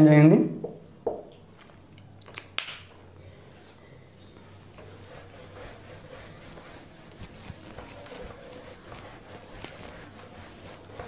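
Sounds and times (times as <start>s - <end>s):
duster rubbing on whiteboard: 4.5s - 11.0s.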